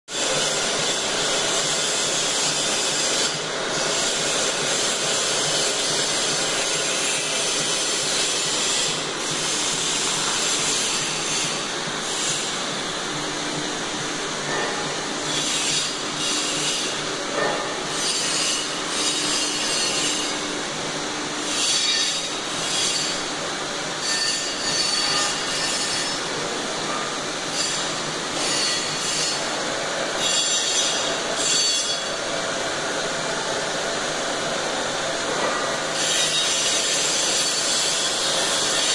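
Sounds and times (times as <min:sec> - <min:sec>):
belt conveyor running: 0:00.1 - 0:38.9
short high squeals: 0:24.0 - 0:26.2.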